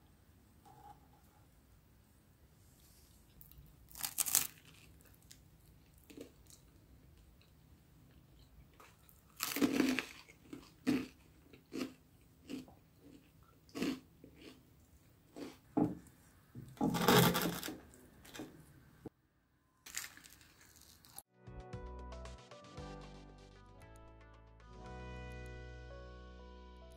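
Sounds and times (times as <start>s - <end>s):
crunching toast bites: 3.4s - 6.7s, 8.8s - 14.6s, 19.9s - 21.2s.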